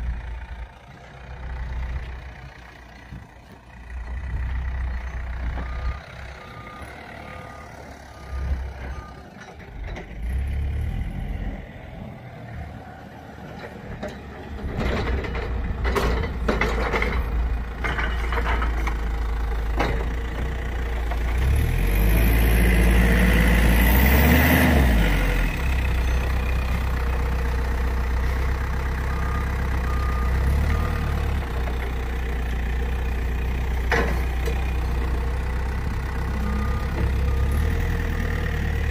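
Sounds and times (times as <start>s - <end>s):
heavy vehicle engine running: 0.0s - 38.9s
reversing alarm beeping: 4.8s - 9.6s, 28.9s - 31.8s, 36.0s - 38.9s.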